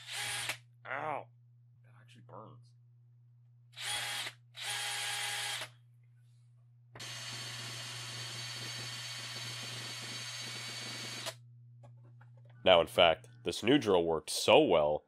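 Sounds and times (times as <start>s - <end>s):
power drill motor whine: 0.0s - 0.6s, 3.8s - 5.7s, 7.0s - 11.4s.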